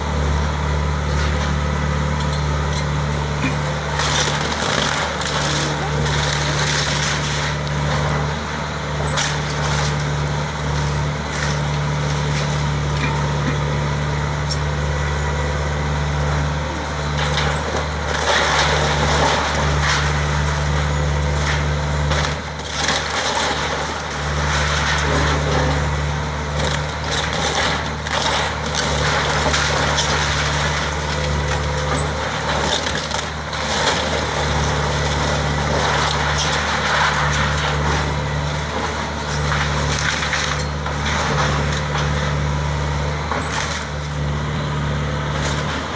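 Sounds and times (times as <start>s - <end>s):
excavator diesel engine running: 0.0s - 45.9s
wood splintering and cracking: 1.1s - 13.9s, 16.4s - 45.9s
debris falling: 3.4s - 13.8s, 17.1s - 42.4s.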